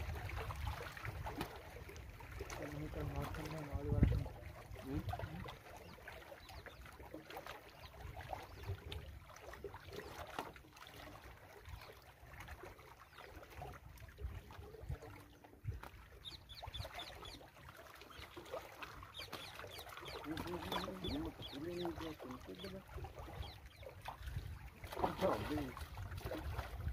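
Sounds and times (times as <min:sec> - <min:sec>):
wind on microphone: 0:00.0 - 0:01.5, 0:02.5 - 0:05.5, 0:22.7 - 0:26.9
waves lapping against rocks: 0:00.0 - 0:26.9.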